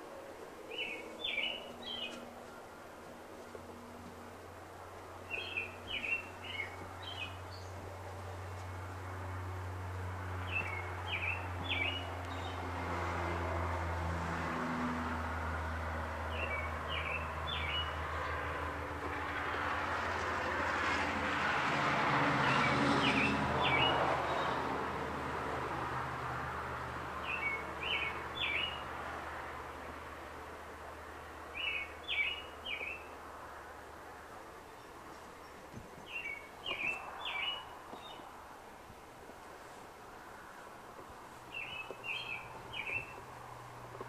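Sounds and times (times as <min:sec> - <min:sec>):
songbird singing: 0:00.0 - 0:04.3, 0:05.0 - 0:08.8, 0:10.4 - 0:12.8, 0:16.3 - 0:18.5, 0:22.4 - 0:24.6, 0:27.2 - 0:28.9, 0:29.8 - 0:33.2, 0:33.8 - 0:39.8, 0:40.4 - 0:44.0.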